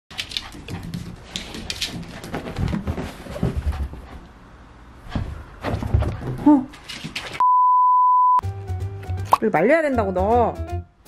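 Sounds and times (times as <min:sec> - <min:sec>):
dog paw clicks and scuffs: 0:00.1 - 0:03.9, 0:06.1 - 0:07.4.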